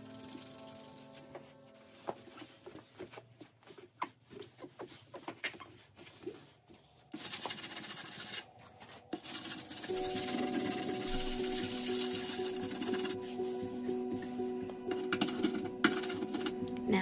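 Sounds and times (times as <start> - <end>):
sponge scrubbing wooden shelf: 0.0 - 13.6.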